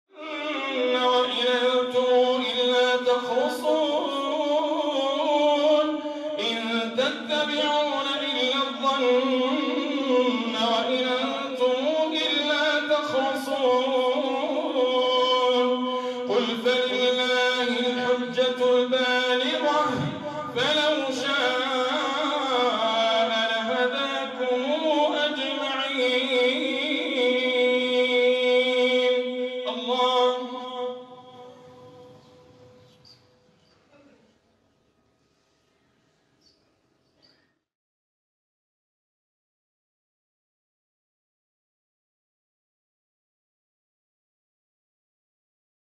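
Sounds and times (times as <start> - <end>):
man chanting into a microphone: 0.1 - 33.1.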